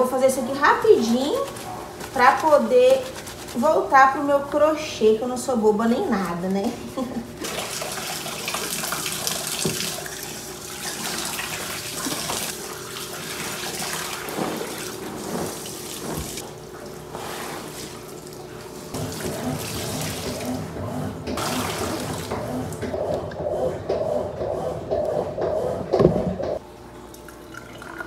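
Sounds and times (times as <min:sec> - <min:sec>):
clothes rinsed by hand splashing: 0:00.0 - 0:04.4, 0:06.1 - 0:20.6, 0:21.4 - 0:22.9
tap water running into sink: 0:07.4 - 0:14.9.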